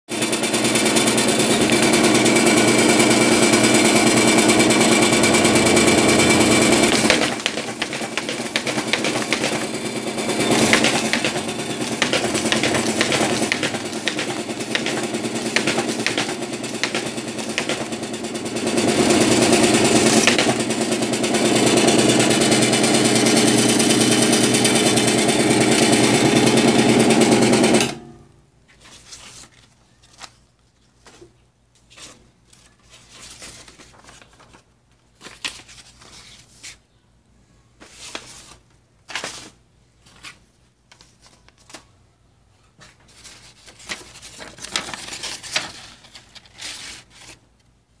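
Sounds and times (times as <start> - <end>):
paper folding machine clattering: 0.1 - 28.2, 31.0 - 36.7, 37.8 - 41.9, 42.8 - 47.5
folded paper rustling: 6.0 - 18.1, 28.7 - 36.8, 37.8 - 42.0, 42.7 - 47.7.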